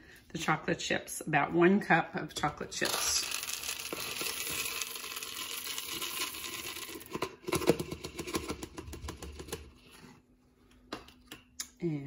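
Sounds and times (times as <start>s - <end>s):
chocolate chips pouring into bowl: 2.8s - 7.2s.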